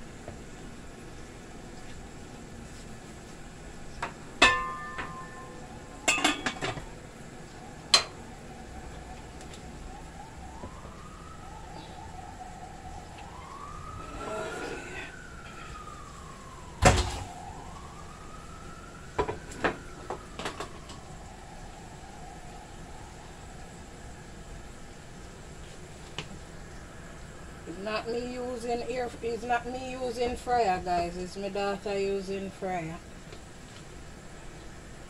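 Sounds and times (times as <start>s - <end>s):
distant siren wailing: 0.0s - 35.0s
metal pot and lid clanking: 4.4s - 5.5s, 6.1s - 6.8s.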